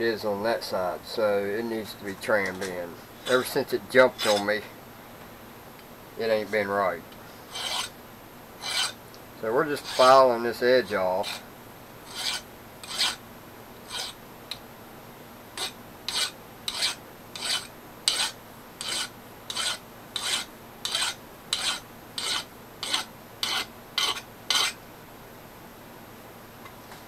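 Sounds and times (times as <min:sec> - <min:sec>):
hand file rasping on steel: 0:02.5 - 0:04.6, 0:07.5 - 0:07.9, 0:08.6 - 0:09.0, 0:09.8 - 0:10.2, 0:11.2 - 0:11.4, 0:12.1 - 0:13.2, 0:13.9 - 0:14.2, 0:15.6 - 0:24.8.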